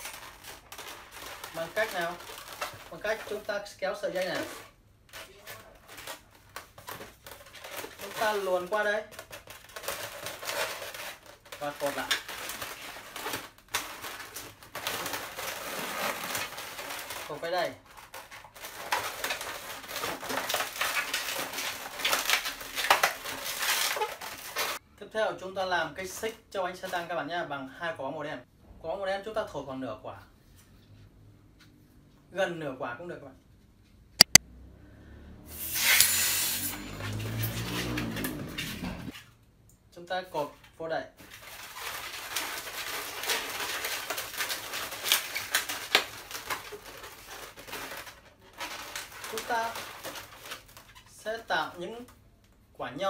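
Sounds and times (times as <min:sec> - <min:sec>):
balloons rubbing and squeaking: 0:00.0 - 0:24.8, 0:35.5 - 0:39.2, 0:41.2 - 0:51.5
sharp balloon squeaks: 0:35.6 - 0:39.1.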